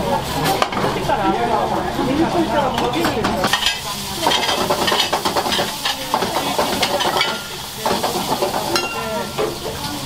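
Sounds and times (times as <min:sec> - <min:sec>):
food sizzling in a frying pan: 0:00.0 - 0:10.0
metal utensil scraping pan: 0:03.5 - 0:09.9.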